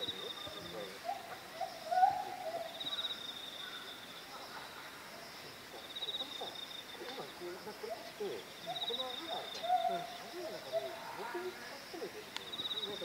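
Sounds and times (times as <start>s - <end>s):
faint voices murmuring: 0.0s - 13.0s.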